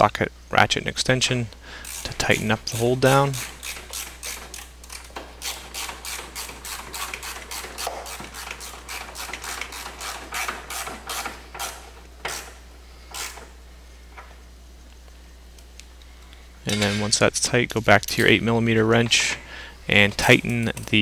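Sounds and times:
hand ratchet clicking: 1.8 - 12.5, 13.1 - 13.5.

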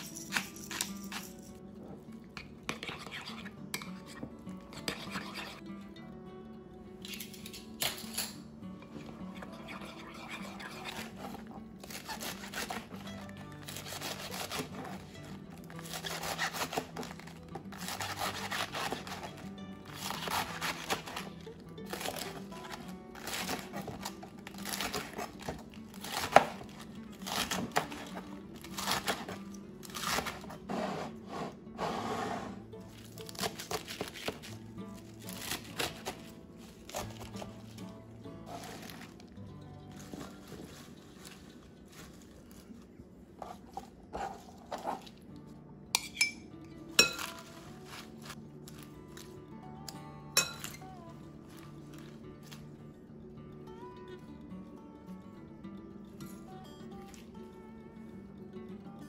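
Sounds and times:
knife slicing crisp lettuce: 0.0 - 1.4, 10.0 - 15.1, 15.7 - 37.7, 47.0 - 49.3
soft background music: 0.0 - 59.0
utensils clinking against glass bowl: 46.0 - 47.3.

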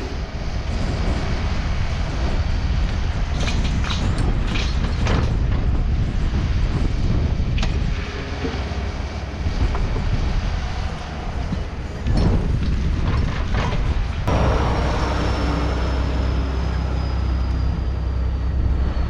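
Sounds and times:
excavator diesel engine running: 0.0 - 19.0
excavator bucket clanking and scraping: 2.8 - 15.2.

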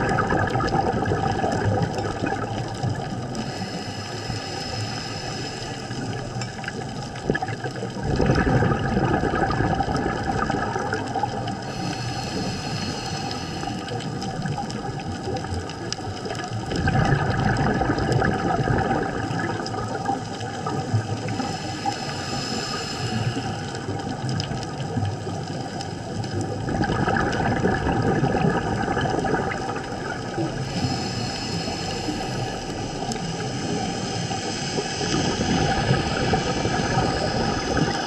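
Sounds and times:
underwater bubbling: 0.0 - 38.0
diver breathing noise: 3.2 - 6.8, 11.5 - 14.4, 20.7 - 24.1, 29.6 - 38.0.

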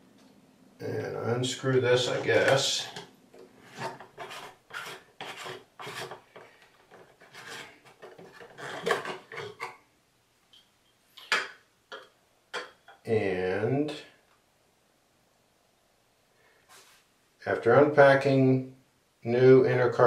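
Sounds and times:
plastic cap threads rasping: 3.7 - 9.7.

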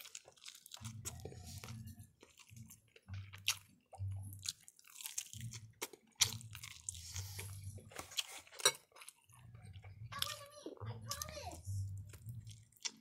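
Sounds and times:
person chewing food: 0.0 - 10.4, 11.1 - 13.0.

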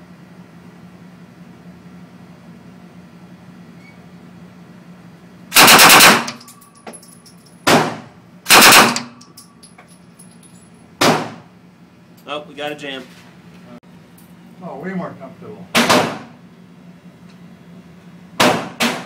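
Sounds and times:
automatic gunfire indoors: 5.5 - 6.5, 7.7 - 9.2.

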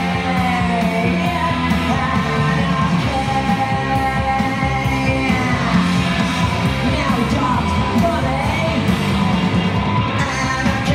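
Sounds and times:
rock song with singing: 0.0 - 10.9.

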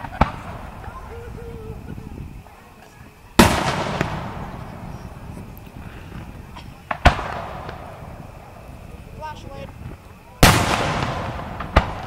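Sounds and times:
firework shell booming: 0.0 - 2.4, 3.4 - 12.0
small firework pop: 6.8 - 7.9, 10.8 - 12.0.

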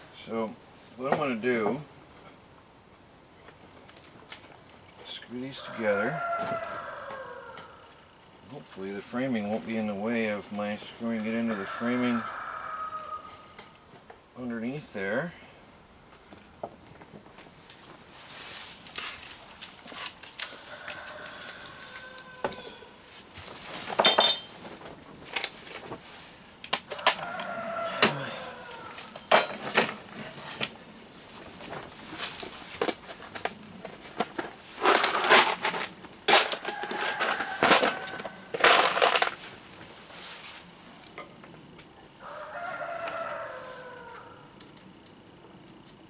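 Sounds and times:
rooster crowing: 5.6 - 8.0, 11.4 - 13.7, 20.4 - 23.1, 26.9 - 29.3, 36.4 - 38.6, 42.2 - 44.6
metal tools clinking on workbench: 24.0 - 24.6, 34.8 - 39.4.

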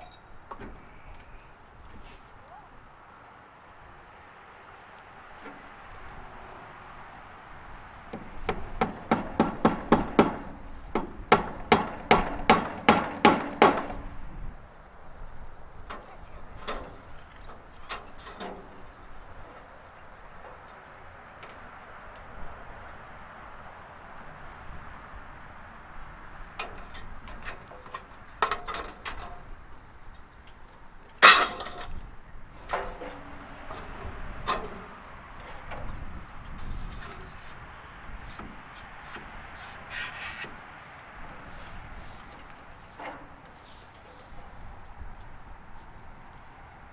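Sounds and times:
loud ringing clink: 0.0 - 0.4
metallic clinks of tools: 0.0 - 0.4
hammer driving nails into wood: 8.1 - 14.0.

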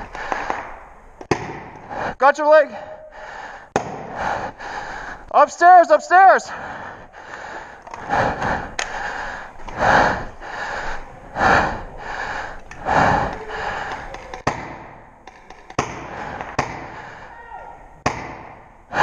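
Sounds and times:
hard gasping breaths: 0.0 - 0.6, 1.6 - 2.2, 2.8 - 5.3, 6.5 - 17.4, 18.3 - 19.0
paintball marker shots: 0.3 - 1.9, 14.4 - 17.0.

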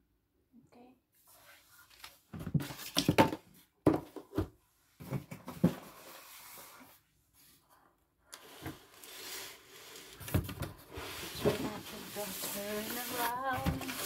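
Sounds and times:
panels scraping: 8.5 - 14.0.

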